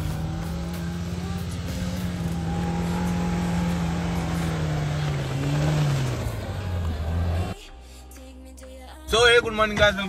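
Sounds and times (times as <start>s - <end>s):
car engine straining under load: 0.0s - 7.6s.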